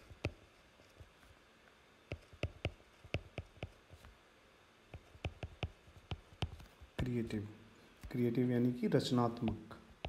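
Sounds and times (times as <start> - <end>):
stylus clicking on tablet: 2.1 - 3.8, 4.9 - 6.8.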